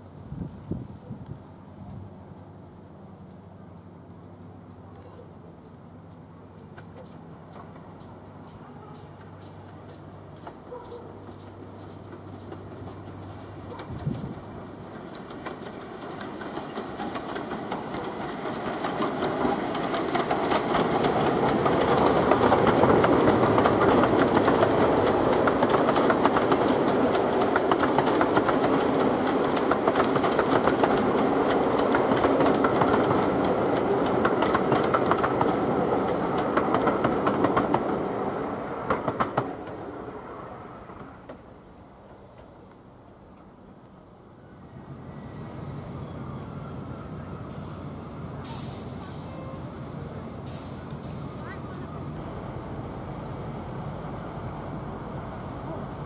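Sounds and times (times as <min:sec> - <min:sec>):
train passing: 0:00.0 - 0:56.0
wheels clicking over rail joints: 0:01.4 - 0:38.0.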